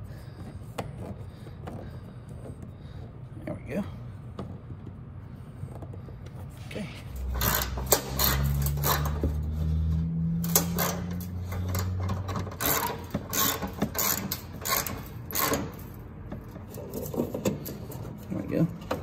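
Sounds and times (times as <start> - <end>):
ratchet wrench clicking: 7.2 - 9.4, 10.4 - 16.0.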